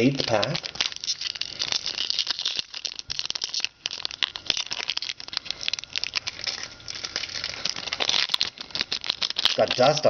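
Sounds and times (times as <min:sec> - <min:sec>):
foil wrapper crinkling: 0:00.0 - 0:10.0.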